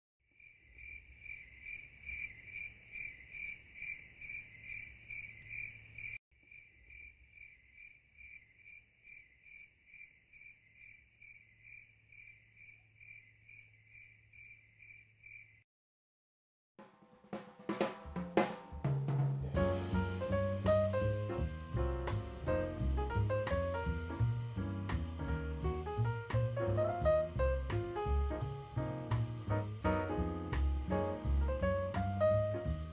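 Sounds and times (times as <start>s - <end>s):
crickets chirping: 0.4s - 15.6s.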